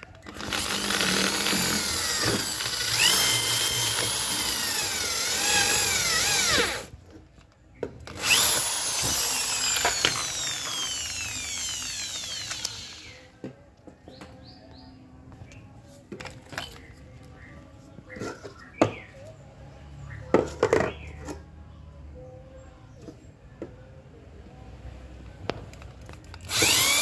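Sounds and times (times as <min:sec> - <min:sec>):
electric drill whining: 0:00.3 - 0:06.9, 0:08.1 - 0:13.3, 0:26.4 - 0:27.0.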